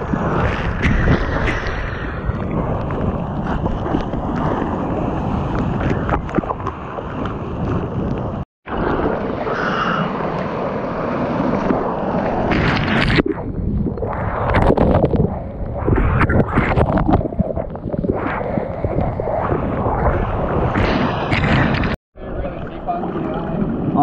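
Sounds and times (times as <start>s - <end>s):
seawater rushing and splashing: 0.0s - 24.0s
wind buffeting microphone: 10.2s - 24.0s.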